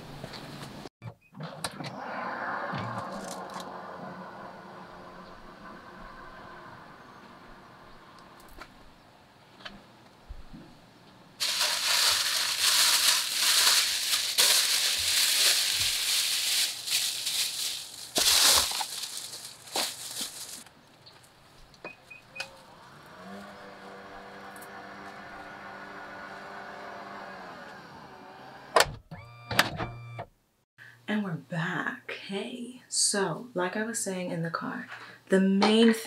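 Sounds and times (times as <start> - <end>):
plastic bags rustling: 11.4 - 21.6.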